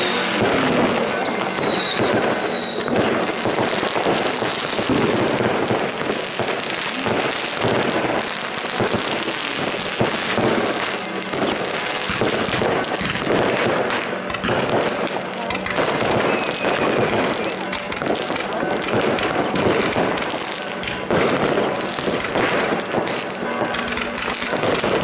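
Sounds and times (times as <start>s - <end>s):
descending firework whistles: 0.0s - 6.0s, 15.8s - 17.7s
fireworks crackling and banging: 0.0s - 25.0s.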